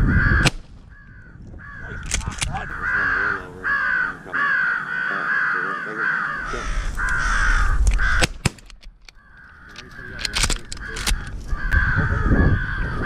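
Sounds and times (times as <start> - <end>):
crows cawing: 0.0 - 13.0
sharp clicks: 2.0 - 2.7, 6.9 - 11.8.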